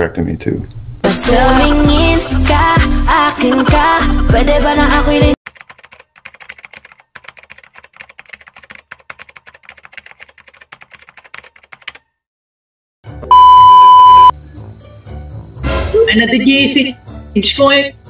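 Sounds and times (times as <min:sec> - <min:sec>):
computer keyboard typing: 0:05.5 - 0:12.0
steady one-tone beep: 0:13.3 - 0:14.4.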